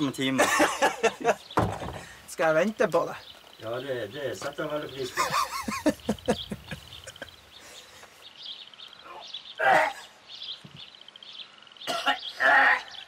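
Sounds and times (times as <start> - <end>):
faint high pulsing chirp: 1.1 - 13.0
man retching: 11.8 - 12.9.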